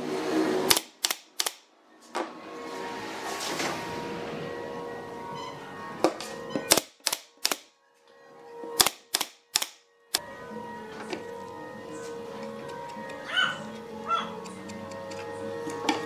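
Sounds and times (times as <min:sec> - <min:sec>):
nail gun firing into wood: 0:00.7 - 0:01.7, 0:06.7 - 0:07.7, 0:08.8 - 0:09.8.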